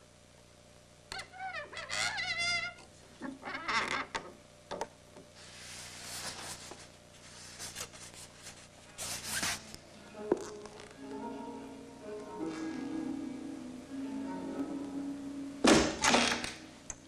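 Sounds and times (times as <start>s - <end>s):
dry rubbing and scraping: 5.4s - 9.8s.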